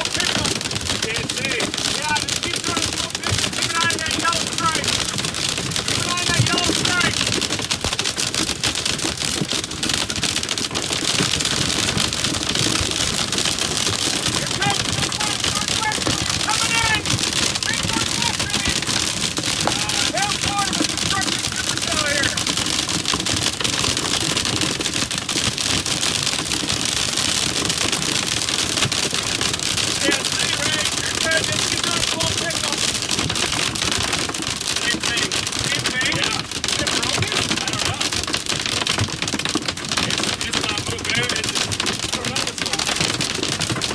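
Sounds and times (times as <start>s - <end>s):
rain and hail drumming on vehicle: 0.0s - 43.9s.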